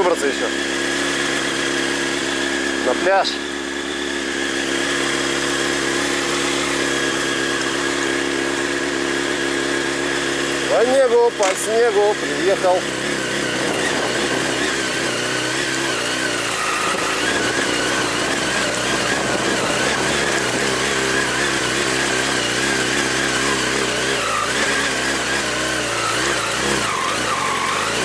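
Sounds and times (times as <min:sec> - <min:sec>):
motorcycle engine running: 0:00.0 - 0:28.0.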